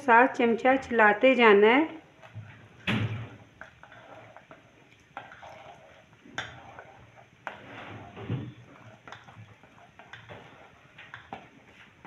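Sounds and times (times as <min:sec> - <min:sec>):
spoon stirring soup in a pot: 0:01.9 - 0:12.0
liquid pouring from a bowl: 0:02.2 - 0:07.0.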